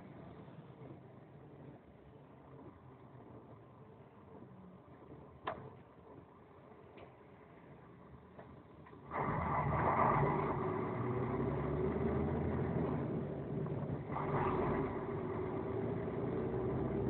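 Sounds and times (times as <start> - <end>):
vehicle engine pulling away: 9.0 - 17.0.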